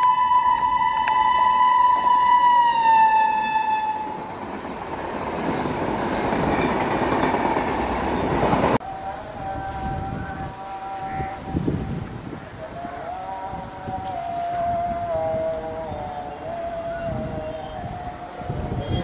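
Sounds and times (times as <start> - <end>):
locomotive air horn: 0.0 - 4.3, 8.8 - 19.0
lower locomotive horn: 0.0 - 4.4, 8.8 - 19.0
train coaches rushing past: 0.3 - 19.0.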